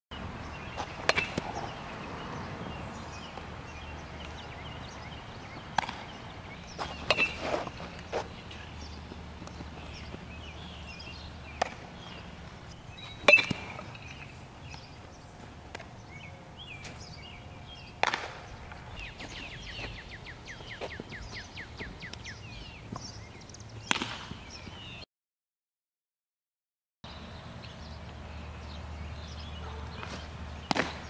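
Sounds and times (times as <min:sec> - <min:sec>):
birds chirping: 0:00.1 - 0:25.0, 0:27.1 - 0:31.0
baseball bat knocks: 0:18.0 - 0:18.4.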